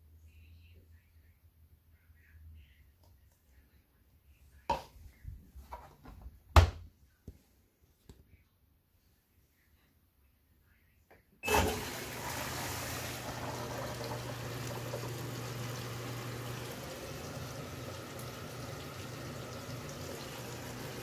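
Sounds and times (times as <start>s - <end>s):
water pouring into tub: 11.4s - 21.0s.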